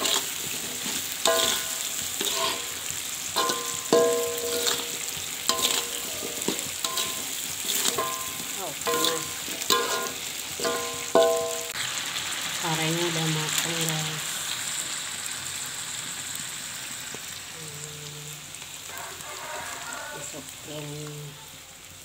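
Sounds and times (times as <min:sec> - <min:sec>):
metal spatula scraping a wok: 0:00.0 - 0:11.8
hot oil sizzling: 0:00.0 - 0:22.0.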